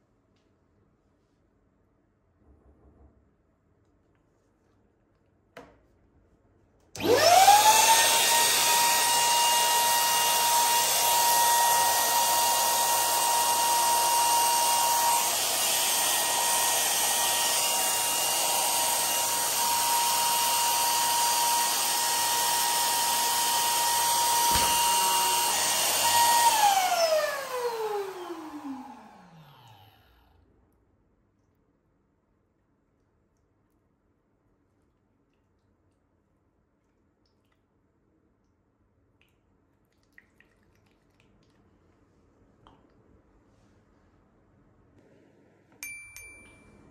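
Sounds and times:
electric balloon pump whining: 0:07.0 - 0:30.3.

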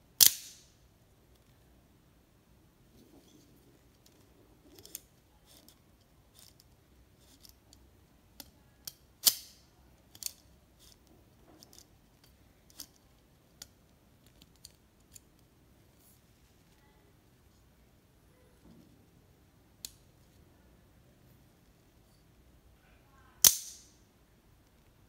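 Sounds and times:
loud sharp snap with ring: 0:00.2 - 0:00.7, 0:23.4 - 0:24.0.

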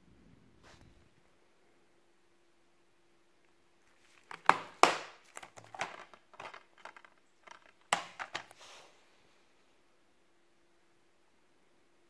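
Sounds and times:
plastic case rattling: 0:04.1 - 0:08.5
plastic case snapping shut: 0:04.3 - 0:08.5.

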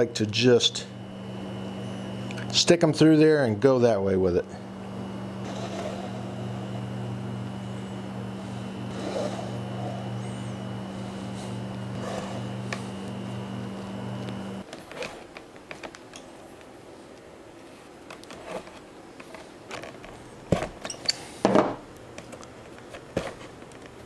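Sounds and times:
steady hum: 0:00.0 - 0:15.3.

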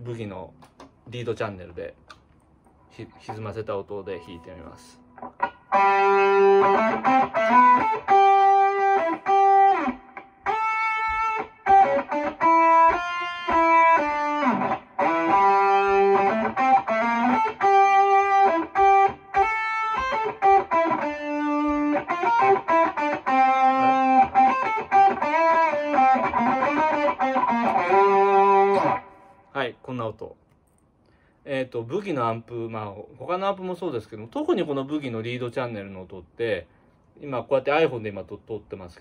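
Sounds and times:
distorted electric guitar lead: 0:05.0 - 0:29.4.

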